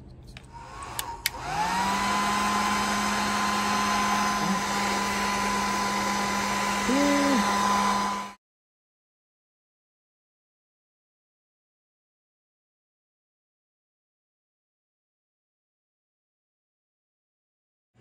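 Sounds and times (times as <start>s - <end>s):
heat gun fan whirring: 0.3s - 8.4s
heat gun switch clicks: 0.8s - 1.5s.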